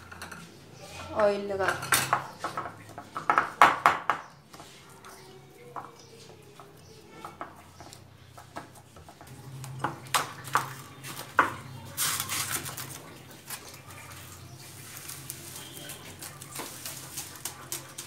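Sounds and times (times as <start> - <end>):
hands working dough in glass bowl: 0.0 - 18.0
plastic cling film crackling: 9.4 - 18.0.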